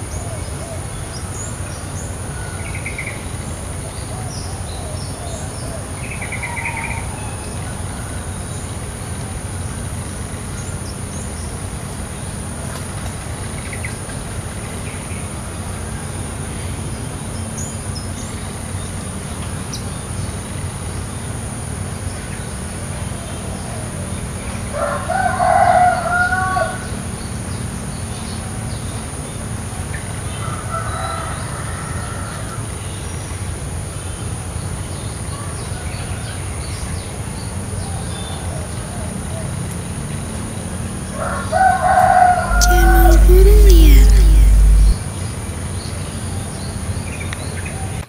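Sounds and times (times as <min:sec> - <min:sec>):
rooster crowing: 0:24.8 - 0:26.8, 0:30.6 - 0:32.4, 0:41.2 - 0:45.0
low rumble: 0:42.5 - 0:45.0.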